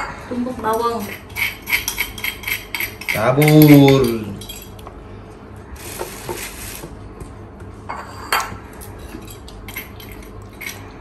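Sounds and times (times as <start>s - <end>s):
bowl scraping rustle: 5.8s - 7.0s.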